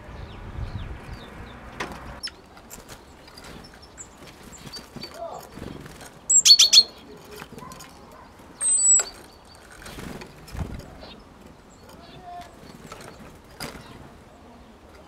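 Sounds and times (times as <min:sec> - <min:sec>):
great tits calling: 0:00.0 - 0:15.0
birds tapping on wooden feeder: 0:01.1 - 0:14.2.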